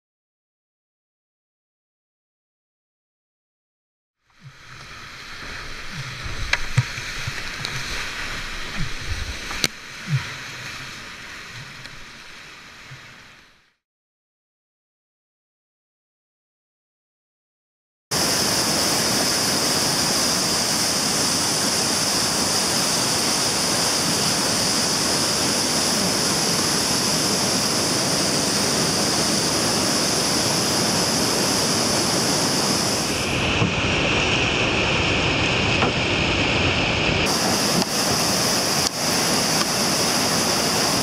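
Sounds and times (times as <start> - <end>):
rushing whitewater rapids: 4.4 - 13.6, 18.2 - 41.0.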